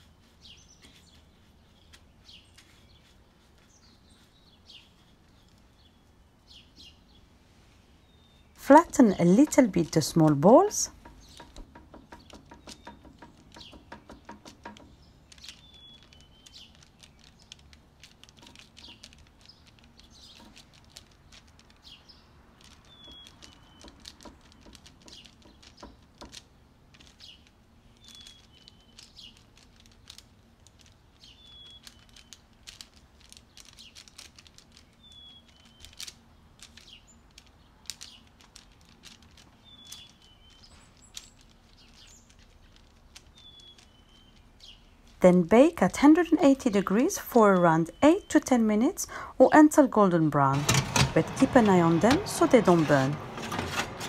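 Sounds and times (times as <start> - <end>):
baking paper crinkling: 0.0 - 5.8, 8.6 - 47.4, 50.4 - 54.0.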